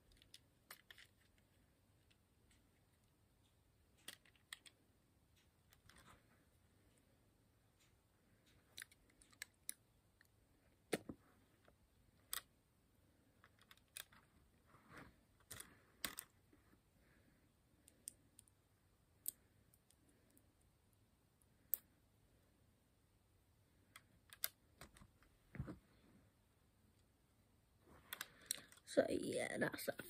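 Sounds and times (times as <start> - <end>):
plastic toy bricks clicking: 0.1 - 1.4, 4.0 - 4.8, 8.4 - 9.8, 13.4 - 14.2, 15.4 - 16.3, 23.9 - 25.0.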